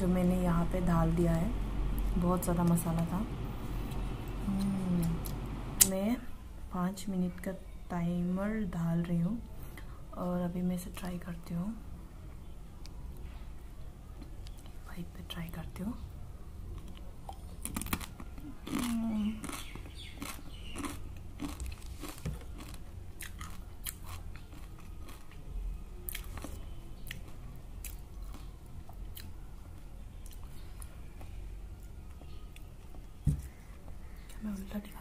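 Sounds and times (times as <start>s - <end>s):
person crunching a chip: 17.6s - 25.4s.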